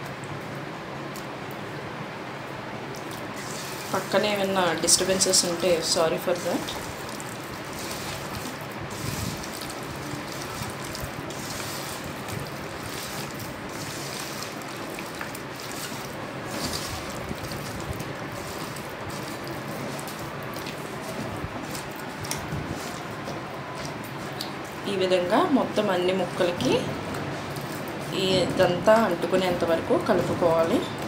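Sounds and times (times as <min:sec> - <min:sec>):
steady background noise: 0:00.0 - 0:31.0
hand squishing mango in masala: 0:06.4 - 0:24.7.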